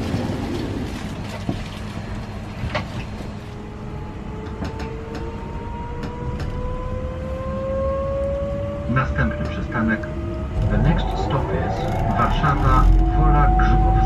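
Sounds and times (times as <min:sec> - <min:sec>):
train low rumble: 0:00.0 - 0:14.0
traction drive whine rising: 0:03.5 - 0:14.0.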